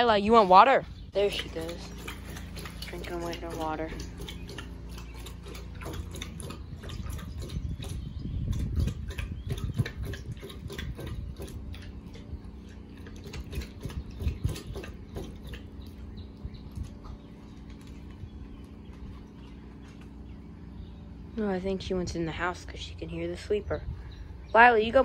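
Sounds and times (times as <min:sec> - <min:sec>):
puppy lapping water: 0:00.8 - 0:20.3.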